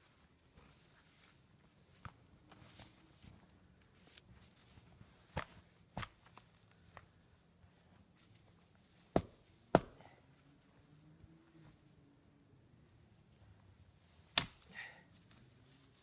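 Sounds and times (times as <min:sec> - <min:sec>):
axe chopping branches: 0:09.2 - 0:10.2, 0:14.3 - 0:15.4.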